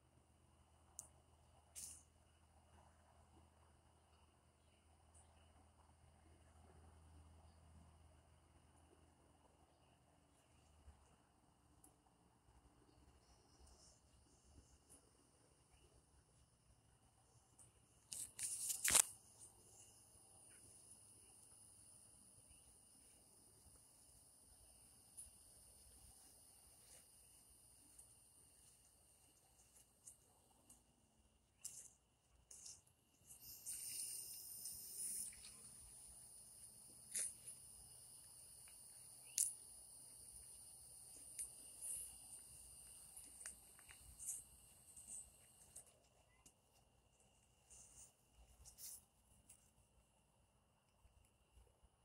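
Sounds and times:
insects chirring: 18.0s - 31.0s, 31.6s - 49.0s
crickets trilling: 32.5s - 45.9s
sharp clicks: 38.6s - 39.6s.

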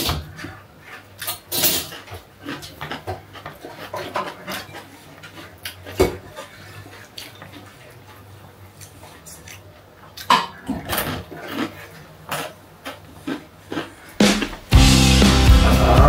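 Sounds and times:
mouth sounds: 14.2s - 16.0s.

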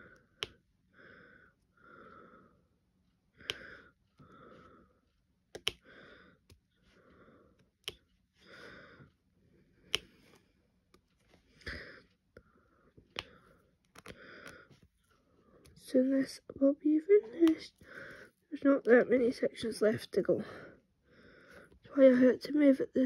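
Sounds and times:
drill pen clicking on plastic: 3.4s - 3.8s, 5.5s - 6.6s, 7.6s - 8.1s.

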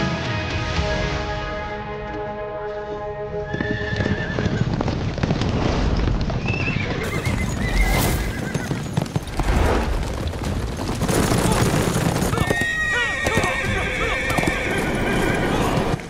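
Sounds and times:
music: 0.0s - 4.8s
hoofbeats galloping on dirt: 2.1s - 16.0s
horses whinnying: 3.4s - 4.9s, 6.4s - 9.4s, 10.9s - 16.0s.

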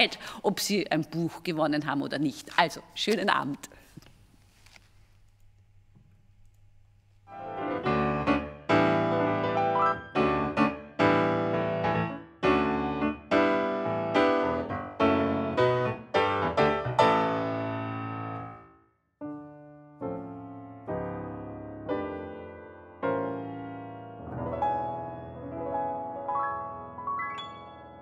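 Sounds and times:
piano music: 7.3s - 28.0s.

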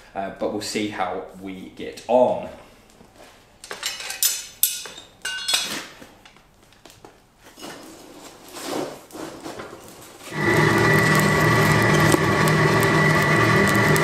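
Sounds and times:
steel scraping in coals: 7.6s - 14.0s.

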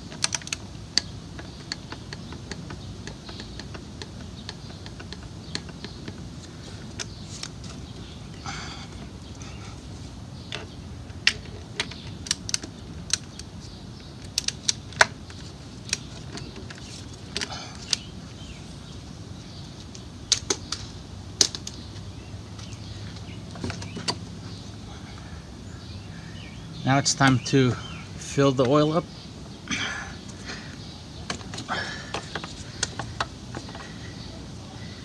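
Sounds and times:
socket scraping: 31.2s - 34.0s.

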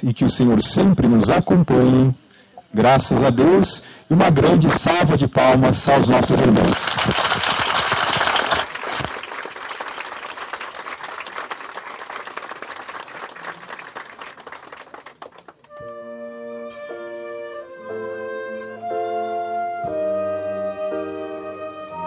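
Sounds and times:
guests applauding: 6.3s - 15.8s
instrumental music with sustained notes: 15.7s - 22.0s.

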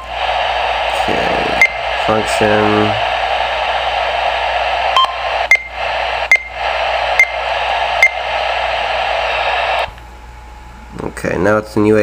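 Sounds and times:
radio receiver static hiss: 0.0s - 10.4s.

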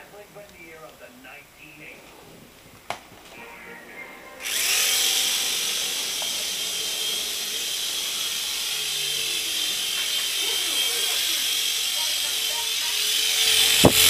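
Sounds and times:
small helicopter motor whine: 4.4s - 14.0s.

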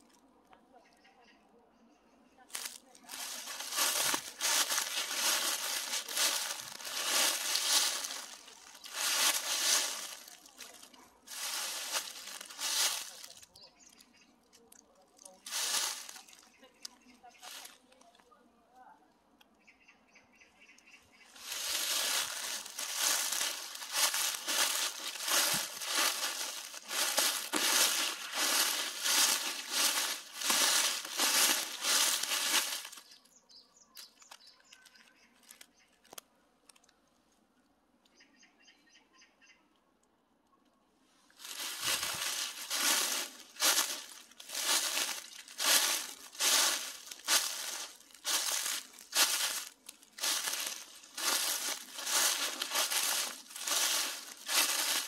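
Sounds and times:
footsteps through dry leaves: 2.5s - 13.6s, 15.2s - 17.8s, 21.3s - 33.2s, 41.3s - 55.0s.

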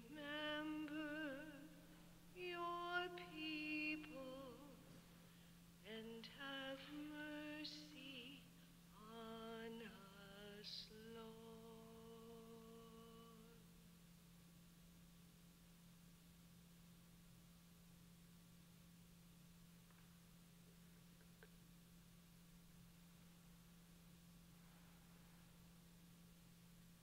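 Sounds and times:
woman singing a hymn: 0.0s - 5.0s, 5.8s - 13.6s
steady low hum: 0.0s - 27.0s.

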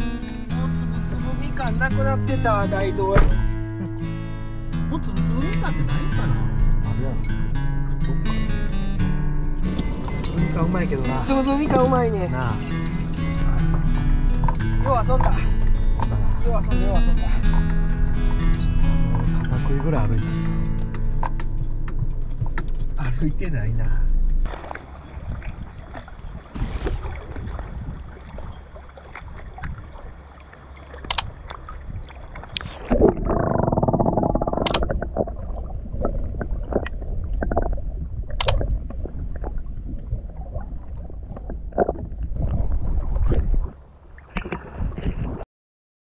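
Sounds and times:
low rumbling: 0.0s - 45.4s
muffled water sloshing underwater: 0.0s - 45.4s
sharp clicks: 31.0s - 31.3s, 33.6s - 35.0s, 38.4s - 38.6s.

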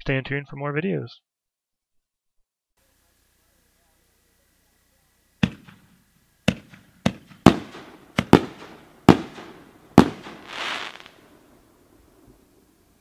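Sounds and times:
fireworks booming: 5.4s - 13.0s
rushing hiss: 7.4s - 13.0s.

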